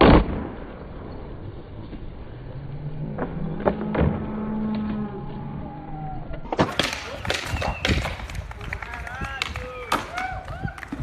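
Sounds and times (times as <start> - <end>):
skateboard landing smack: 0.0 - 0.6, 6.5 - 8.4, 9.3 - 11.0
skateboard wheels rolling on concrete: 0.0 - 11.0
low hum: 0.1 - 8.6.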